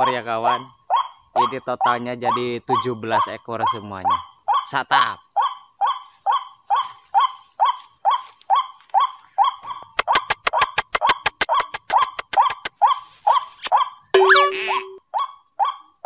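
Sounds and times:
fast sharp clicks: 0:09.8 - 0:12.8.

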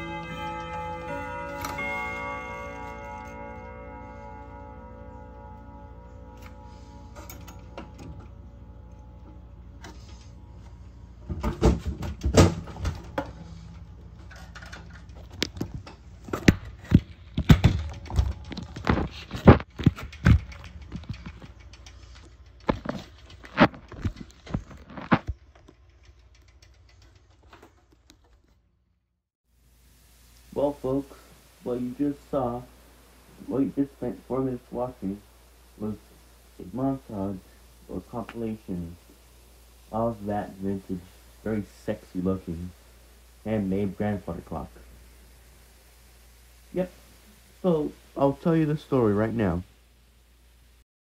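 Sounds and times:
clock chime rods ringing: 0:00.0 - 0:11.2.

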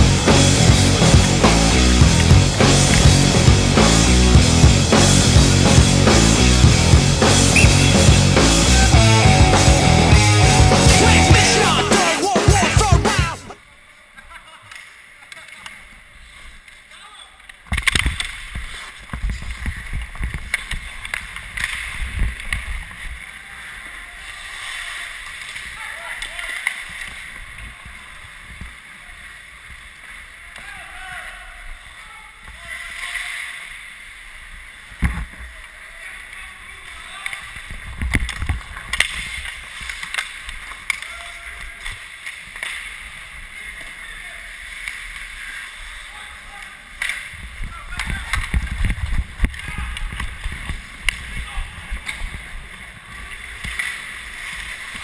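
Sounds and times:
low thumps from skating: 0:00.0 - 0:11.4
stick and puck clacks: 0:17.4 - 0:23.2, 0:37.2 - 0:43.2, 0:47.0 - 0:47.4, 0:48.0 - 0:51.4, 0:53.4 - 0:55.0
skate blades scraping ice: 0:17.6 - 0:30.5, 0:36.8 - 0:55.0.

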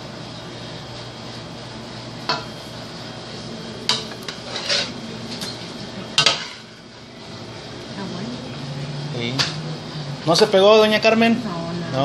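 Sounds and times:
bowl scraping and knocking metal pans: 0:03.9 - 0:05.6.

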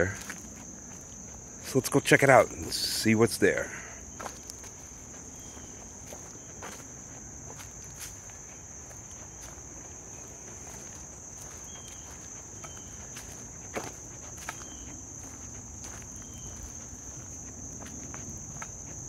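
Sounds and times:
footsteps on dry leaves: 0:00.0 - 0:03.1, 0:04.0 - 0:19.0
insects chirping: 0:00.0 - 0:19.0.

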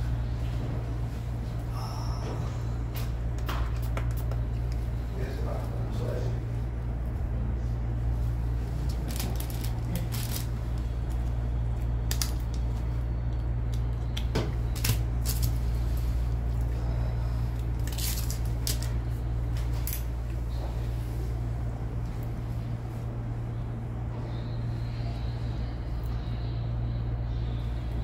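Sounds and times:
steady low hum: 0:00.0 - 0:28.0
paper packet crinkling: 0:08.8 - 0:11.3, 0:12.0 - 0:12.8, 0:14.7 - 0:15.6, 0:17.8 - 0:19.0.

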